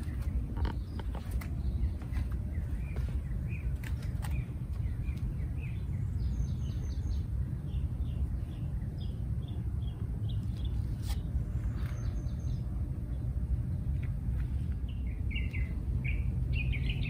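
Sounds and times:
low outdoor rumble: 0.0 - 17.0
small birds chirping: 0.0 - 17.0.

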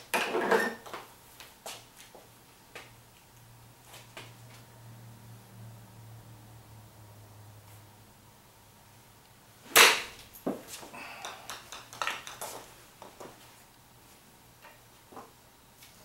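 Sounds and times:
golf club striking ball: 9.6 - 10.2
small clicks and knocks: 11.3 - 13.2.

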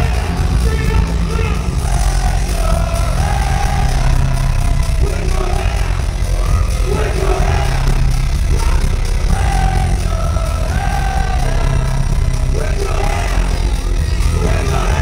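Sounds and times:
heavy steady bass: 0.0 - 15.0
loud live concert music: 0.0 - 15.0.

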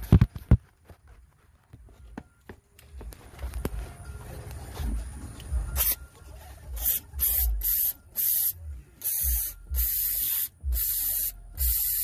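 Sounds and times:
aerosol can spraying: 6.8 - 12.0.

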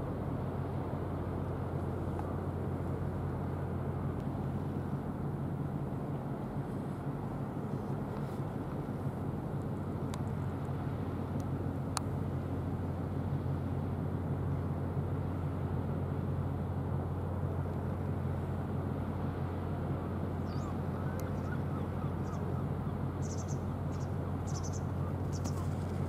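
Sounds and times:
ship engine drone: 0.0 - 26.0
faint click: 9.6 - 10.3, 21.1 - 21.4.

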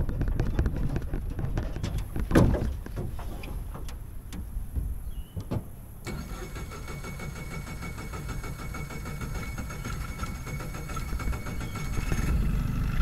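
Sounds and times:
knocks: 0.3 - 5.7
boots thumping on boat deck: 1.7 - 5.8
outboard motor starting and idling: 6.1 - 13.0.

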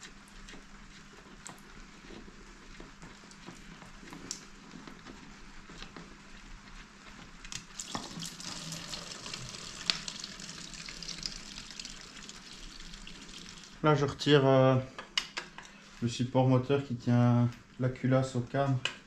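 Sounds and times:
liquid pouring into plastic bottle: 7.6 - 13.8.

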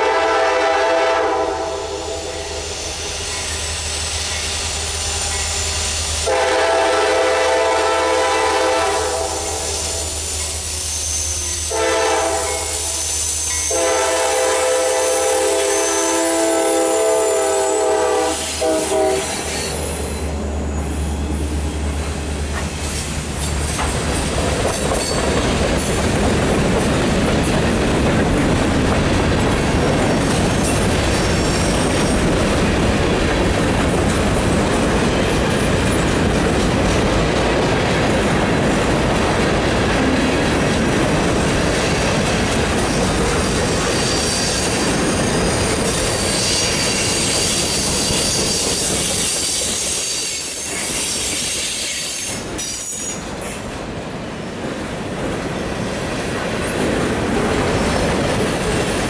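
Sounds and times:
locomotive horn: 0.0 - 2.4, 6.2 - 10.2, 11.0 - 20.3
diesel locomotive drone: 0.0 - 59.0
train wheels rumbling and clacking: 0.0 - 59.0.

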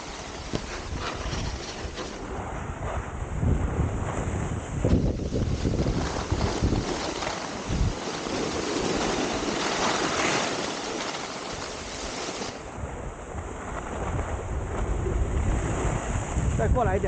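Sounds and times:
skis sliding on snow: 0.0 - 3.1, 3.7 - 12.8
wind on microphone: 0.0 - 17.0.

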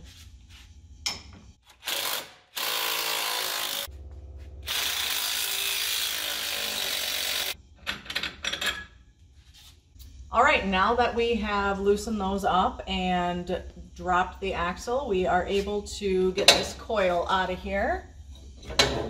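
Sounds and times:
power tools spinning bolts: 1.8 - 3.9, 4.7 - 7.6.

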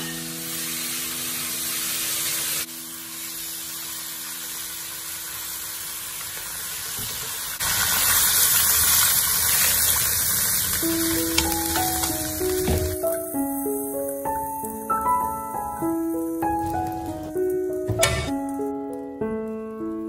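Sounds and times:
fish frying in hot oil: 0.0 - 15.0
water hissing in hot pan: 0.0 - 18.7.

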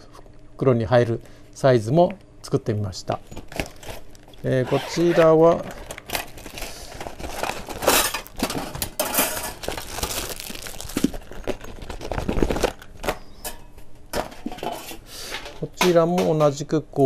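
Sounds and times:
plastic bag rustling: 3.5 - 13.3.

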